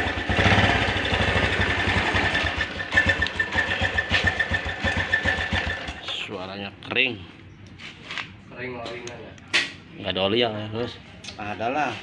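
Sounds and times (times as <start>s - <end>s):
motorcycle engine idling roughly: 0.0s - 6.0s.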